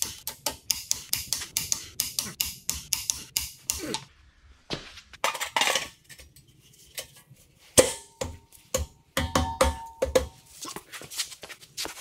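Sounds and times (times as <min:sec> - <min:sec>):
ringing metallic taps: 0:07.8 - 0:10.4.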